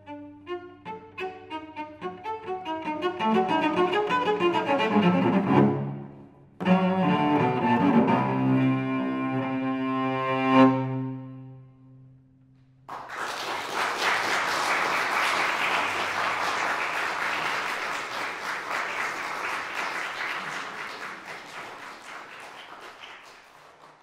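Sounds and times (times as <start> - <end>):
cello note: 0.0 - 12.8
audience applause: 12.9 - 24.0.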